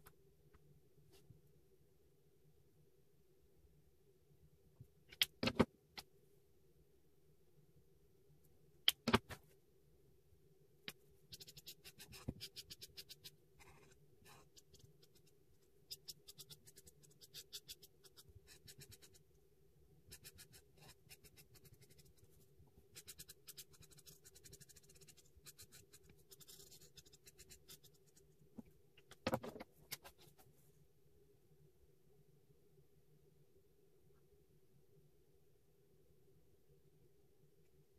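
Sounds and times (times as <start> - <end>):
marker rubbing on paper: 22.9 - 28.2.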